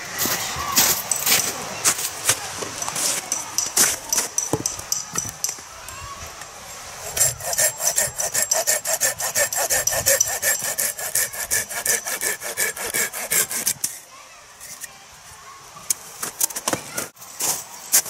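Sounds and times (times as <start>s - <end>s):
hand saw cutting log: 7.0s - 14.0s.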